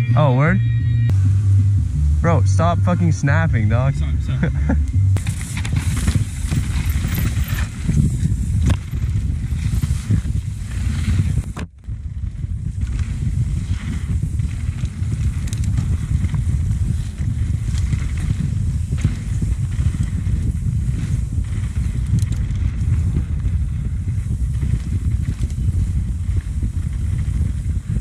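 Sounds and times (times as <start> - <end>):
bike tyres on dirt: 1.1 - 28.0
wind rush: 1.1 - 28.0
bike rattling over bumps: 4.5 - 28.0.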